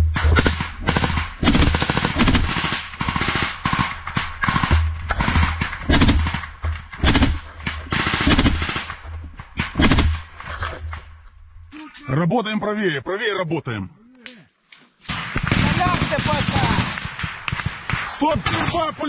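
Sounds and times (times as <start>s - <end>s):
machine gun firing bursts: 0.1s - 9.0s, 9.6s - 10.3s, 15.1s - 19.0s.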